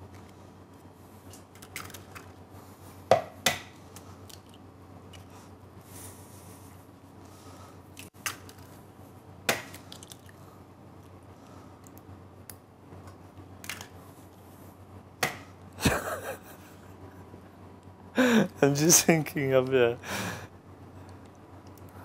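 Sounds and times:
eggshells cracking: 9.5 - 10.4.

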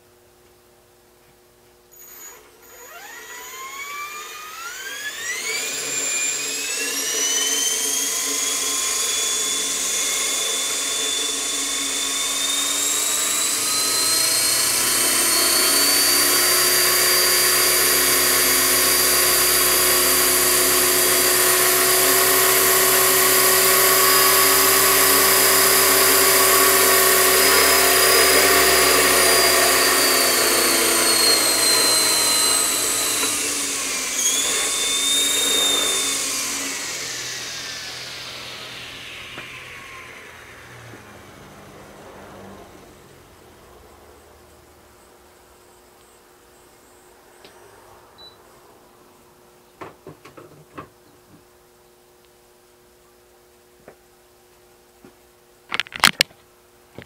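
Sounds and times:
rc helicopter motor whine: 1.9 - 43.4
low rotor hum: 12.8 - 44.4.

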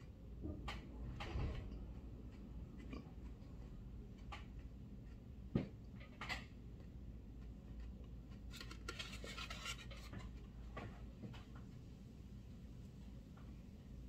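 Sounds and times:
low room hum: 0.0 - 14.0
faint rustling and scratching: 6.0 - 11.9.

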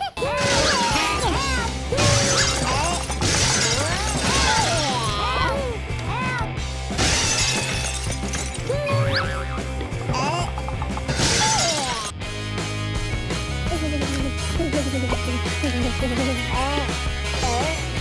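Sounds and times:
cartoon sound effects: 0.2 - 5.6, 8.7 - 12.1
background music: 0.2 - 18.0.

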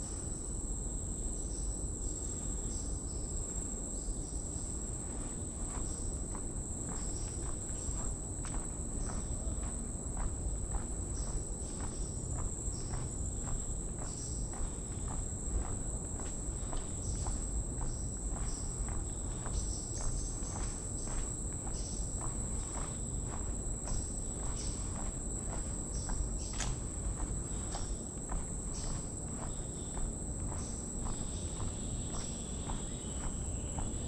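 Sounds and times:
footsteps on wooden boardwalk: 5.0 - 34.0
high-pitched insect drone: 16.6 - 34.0.

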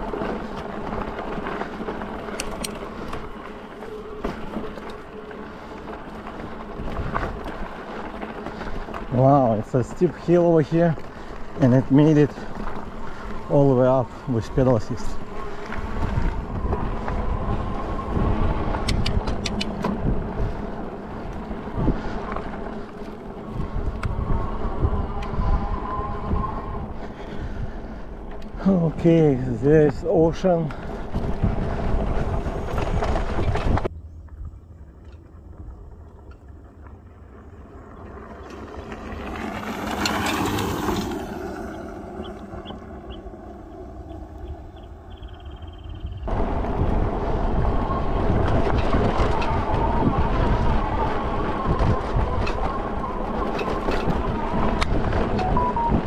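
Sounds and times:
tyres rolling on dirt: 0.0 - 56.0
wind buffeting microphone: 0.0 - 56.0
sharp clicks: 18.8 - 19.9.

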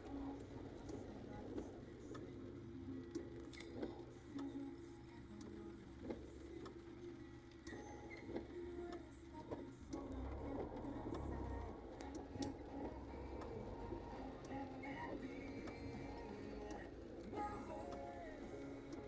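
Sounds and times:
car engine hum: 0.0 - 19.0
raindrops tapping on windshield: 5.4 - 19.0.

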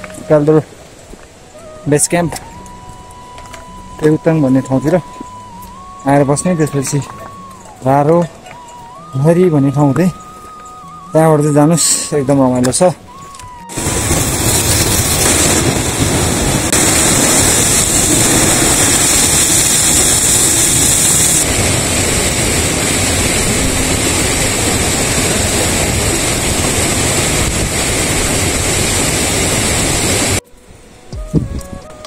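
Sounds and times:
rushing water: 13.6 - 31.2.

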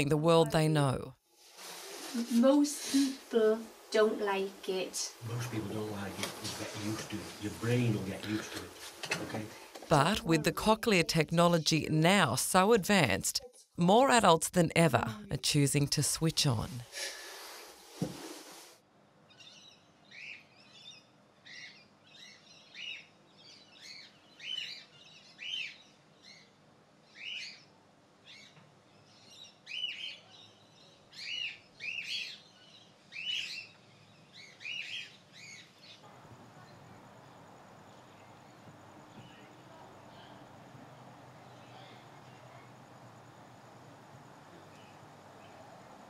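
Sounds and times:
small birds chirping: 19.2 - 46.0.

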